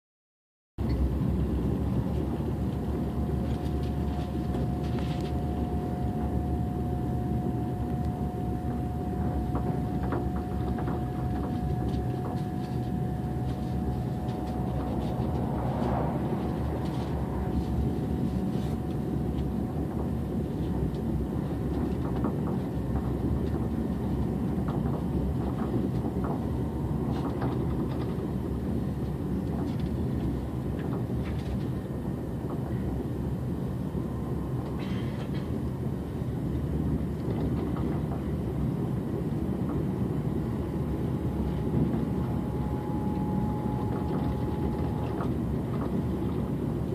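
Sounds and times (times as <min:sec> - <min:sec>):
train wheels rumbling on rails: 0:00.8 - 0:46.9
thin steady whine: 0:00.9 - 0:22.2, 0:38.6 - 0:46.9.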